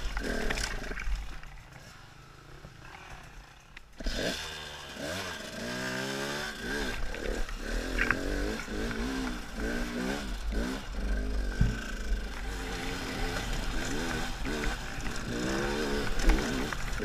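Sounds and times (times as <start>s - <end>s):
motorcycle engine revving: 0.0s - 17.0s
bike knocking on ground: 11.5s - 12.0s.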